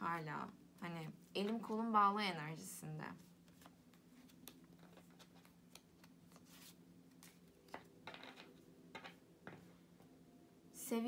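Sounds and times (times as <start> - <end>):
steady low hum: 0.0 - 11.0
cards clicking and rustling: 3.4 - 9.7.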